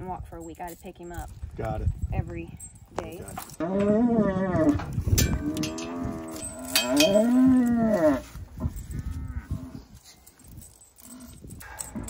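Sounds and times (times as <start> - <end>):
cow bellowing: 3.6 - 9.8, 11.0 - 12.0.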